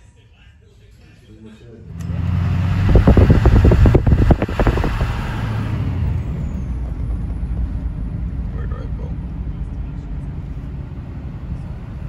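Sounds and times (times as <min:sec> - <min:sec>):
car engine and road rumble: 0:01.2 - 0:12.0.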